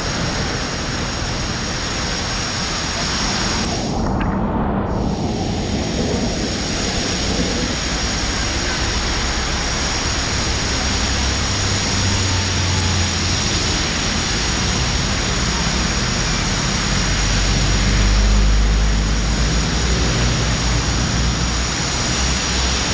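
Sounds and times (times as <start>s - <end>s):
heavy rain pouring: 0.0s - 22.9s
vehicle engine droning: 0.0s - 22.9s
vehicles driving through water: 5.7s - 22.9s.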